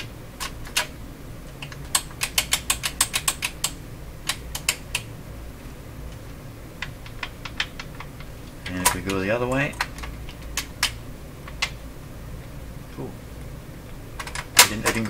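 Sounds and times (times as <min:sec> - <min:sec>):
tape deck mechanical clicking: 0:01.5 - 0:05.1, 0:06.8 - 0:11.8, 0:14.2 - 0:15.0.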